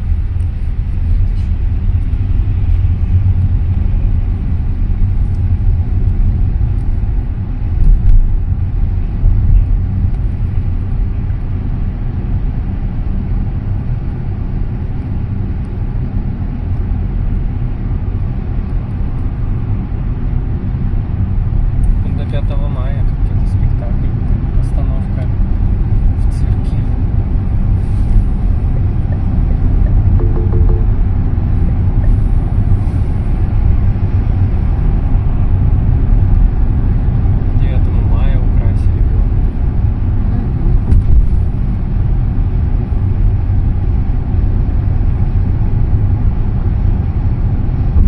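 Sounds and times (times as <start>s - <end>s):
car road and engine rumble: 0.0s - 48.0s.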